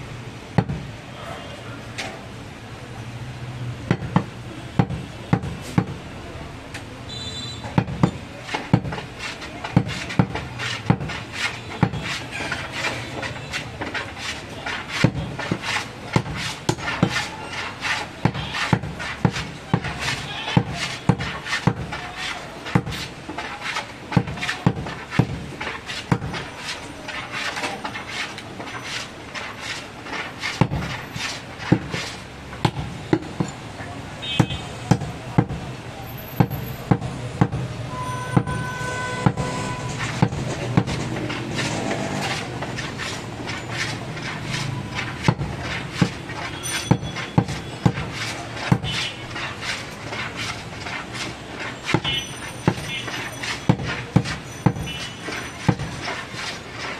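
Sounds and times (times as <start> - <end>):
cleaver chopping on wooden block: 3.9 - 6.0, 7.8 - 22.0, 22.6 - 26.5, 30.1 - 33.6, 34.4 - 35.6, 40.1 - 56.6.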